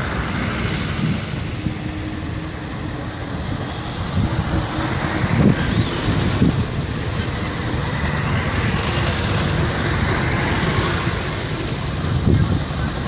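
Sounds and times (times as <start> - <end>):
vehicle engines rumbling: 0.0 - 13.0.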